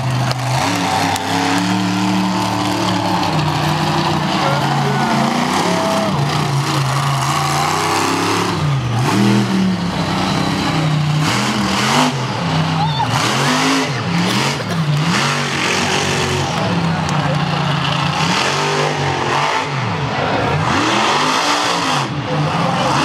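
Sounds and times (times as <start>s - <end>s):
truck engine revving: 0.0s - 23.0s.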